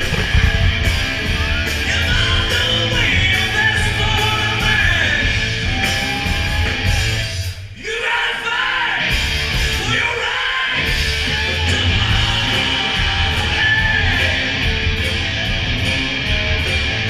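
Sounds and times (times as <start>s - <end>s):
live band music with singer: 0.0s - 17.0s.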